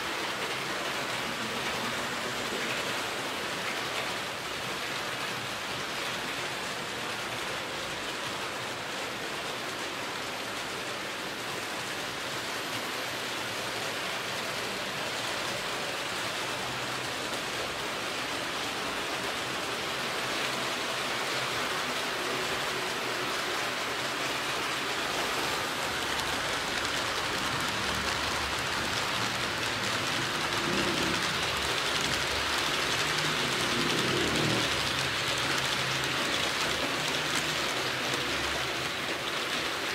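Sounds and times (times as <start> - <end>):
model train wheels on rails: 0.0 - 39.9.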